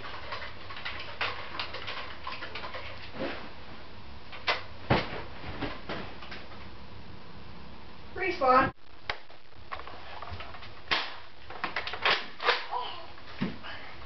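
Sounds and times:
sharp knocks and thumps: 4.8s - 6.4s.

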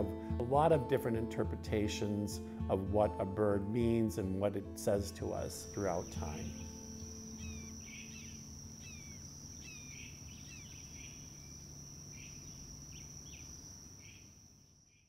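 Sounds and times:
high insect trill: 4.8s - 15.0s
small birds chirping: 5.6s - 15.0s.

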